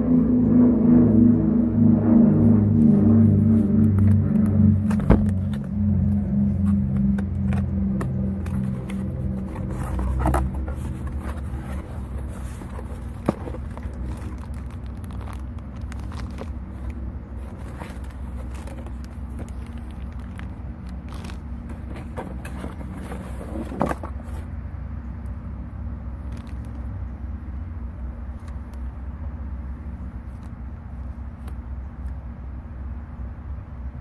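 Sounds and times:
steady low rumble: 0.0s - 34.0s
packaging rustling and scraping: 4.9s - 24.6s.

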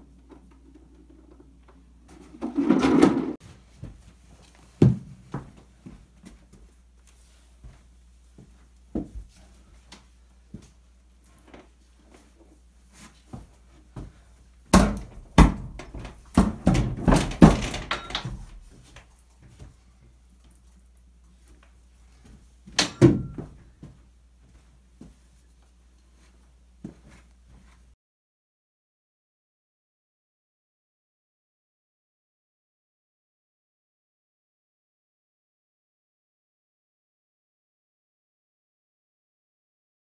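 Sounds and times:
heavy steel safe thudding: 14.7s - 18.6s, 22.8s - 23.6s
tire irons and balls knocking: 14.7s - 18.6s.

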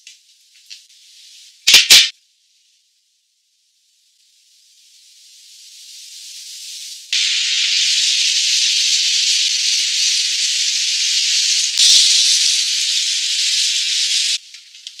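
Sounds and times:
seafood sizzling in oil: 7.0s - 14.8s.

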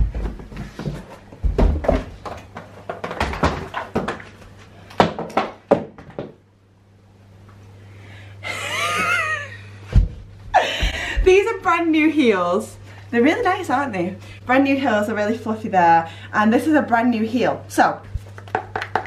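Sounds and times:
footsteps on carpeted stairs: 0.0s - 6.4s, 9.9s - 11.8s.

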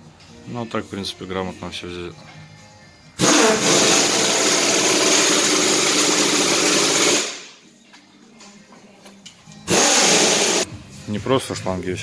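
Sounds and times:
power tool hissing whir: 3.2s - 7.5s, 9.7s - 10.7s.

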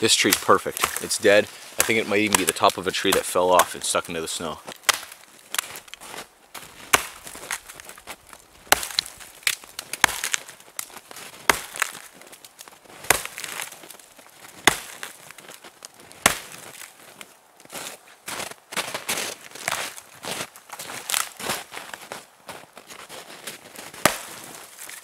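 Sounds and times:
axe chopping into tree: 0.3s - 1.1s, 1.7s - 3.7s, 4.7s - 6.0s, 6.6s - 12.2s, 13.0s - 13.8s, 14.4s - 15.4s, 16.2s - 16.9s, 23.9s - 24.6s.

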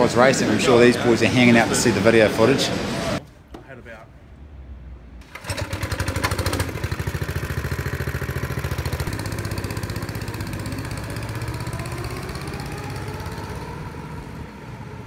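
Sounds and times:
go-kart engine running: 5.2s - 15.0s.

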